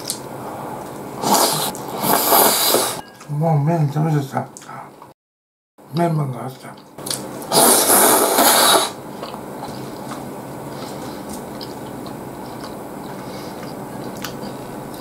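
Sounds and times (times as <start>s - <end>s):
person chewing: 0.0s - 3.0s, 7.0s - 15.0s
loud slurp of noodles: 1.2s - 3.0s, 7.5s - 9.0s.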